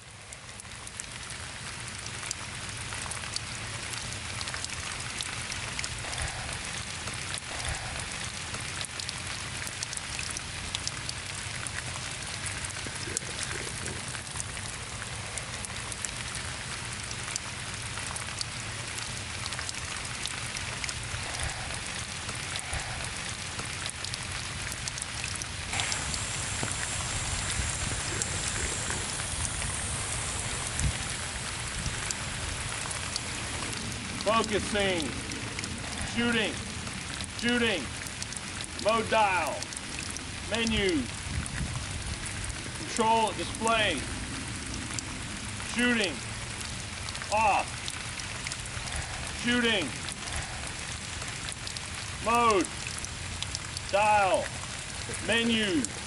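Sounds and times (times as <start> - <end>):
water spray pattering like rain: 0.0 - 56.0
thin high hiss: 25.8 - 31.7.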